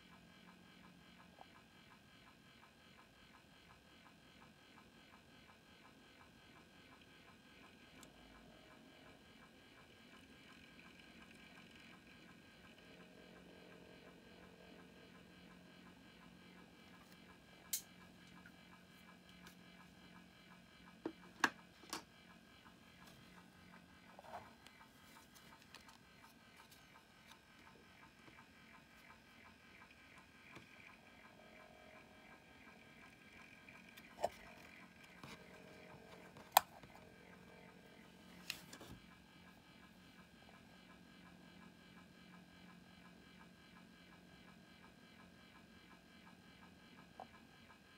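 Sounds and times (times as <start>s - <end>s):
faint steady hum: 0.0s - 47.9s
small handling clicks and taps: 24.1s - 27.7s.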